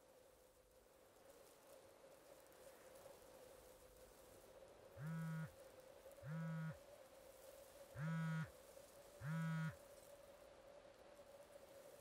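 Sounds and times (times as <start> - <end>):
phone vibrating buzzes: 5.0 - 5.5, 6.2 - 6.8, 8.0 - 8.5, 9.2 - 9.8.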